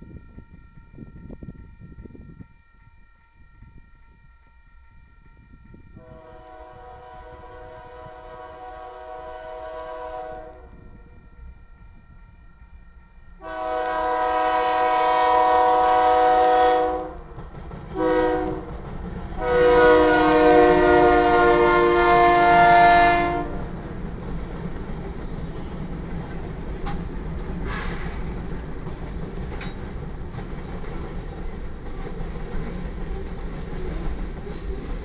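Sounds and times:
locomotive air horn: 0:06.0 - 0:11.0, 0:13.4 - 0:17.3, 0:18.0 - 0:18.7, 0:19.4 - 0:23.7, 0:27.6 - 0:28.2
locomotives rumbling past: 0:13.4 - 0:35.0.

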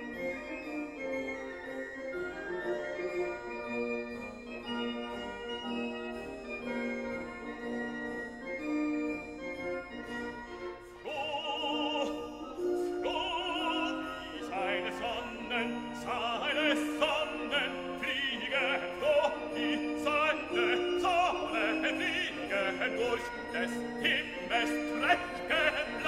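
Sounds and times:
operatic singing voice: 0:11.0 - 0:26.0.

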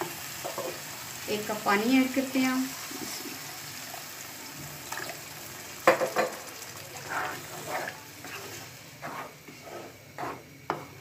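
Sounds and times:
food sizzling in a pan: 0:00.0 - 0:11.0
spatula scraping a pan: 0:07.0 - 0:11.0.

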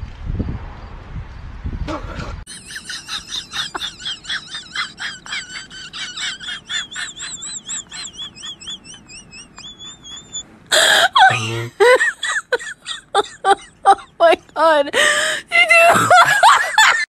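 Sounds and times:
man whistling bird-like chirps: 0:07.3 - 0:10.4.

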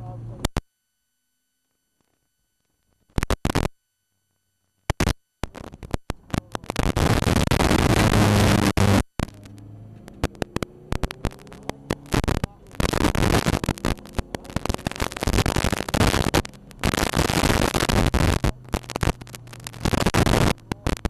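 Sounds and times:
harsh distorted noise: 0:03.1 - 0:03.7, 0:04.9 - 0:21.0
race car engine: 0:08.0 - 0:17.1.

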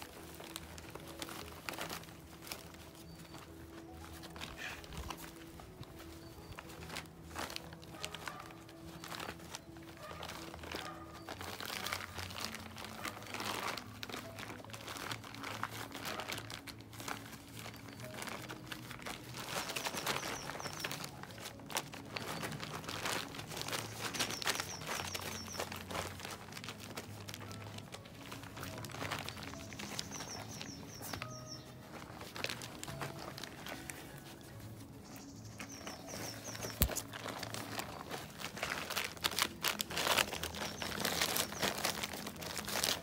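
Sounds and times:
background music with low tones: 0:00.0 - 0:43.0
crinkling and rustling: 0:00.0 - 0:43.0
high chirping notes: 0:29.3 - 0:32.0.

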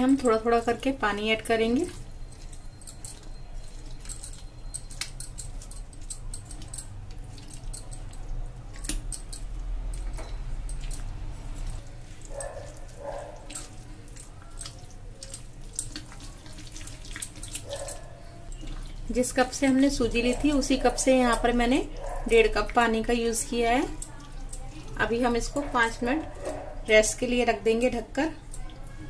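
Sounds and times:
spatula stirring batter in glass bowl: 0:00.0 - 0:29.0
bangles clinking: 0:01.6 - 0:16.0
water pouring: 0:10.7 - 0:20.3.

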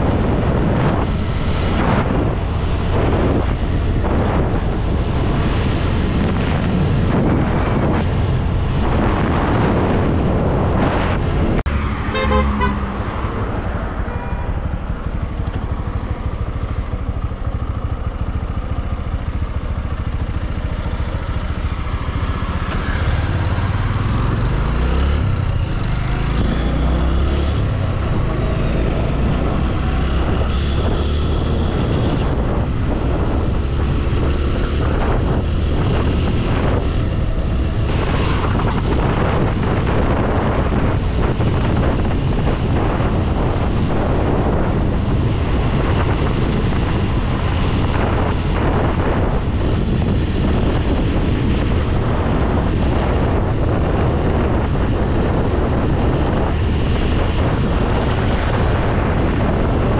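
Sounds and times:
motorcycle engine: 0:00.0 - 0:59.9
wind rush on microphone: 0:00.0 - 0:59.9
short horn toot: 0:12.1 - 0:12.9.

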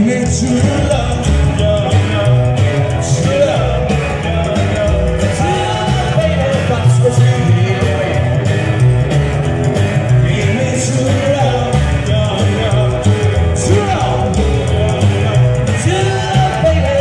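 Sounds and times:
lead singer singing: 0:00.0 - 0:08.8, 0:09.9 - 0:17.0
acoustic guitar: 0:00.0 - 0:17.0
drums: 0:00.0 - 0:17.0
upright bass: 0:00.0 - 0:17.0.

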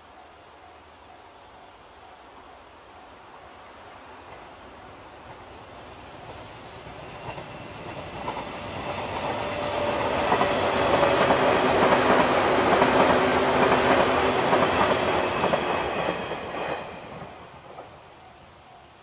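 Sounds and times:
train wheels clacking over rail joints: 0:05.2 - 0:18.0.

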